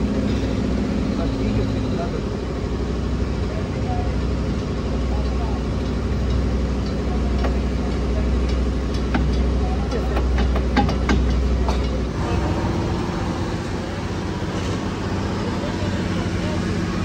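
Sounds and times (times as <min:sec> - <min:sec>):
low engine drone: 0:00.0 - 0:17.0
metal hub knocking and clinking: 0:05.2 - 0:12.1.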